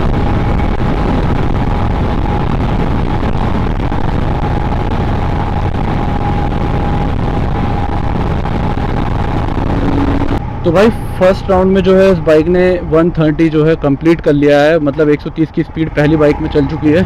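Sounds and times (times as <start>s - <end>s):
motorcycle engine at high speed: 0.0s - 13.3s
thin steady whine: 0.0s - 17.0s
wind and road noise: 0.0s - 17.0s.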